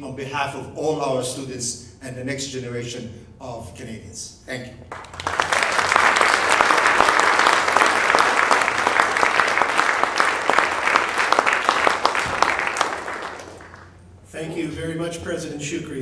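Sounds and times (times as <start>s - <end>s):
audience applauding: 4.9s - 14.0s.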